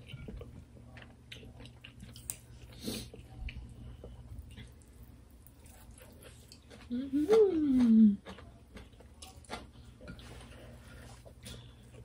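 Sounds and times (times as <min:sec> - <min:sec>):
people chewing: 0:00.0 - 0:12.0.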